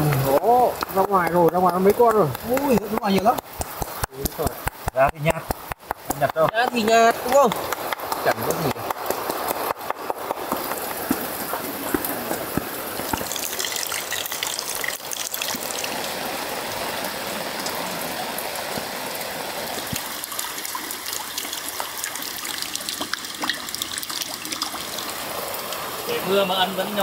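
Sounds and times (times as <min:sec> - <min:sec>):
drips and taps: 0:00.0 - 0:16.0, 0:19.8 - 0:25.1
steady rain falling: 0:00.0 - 0:27.0.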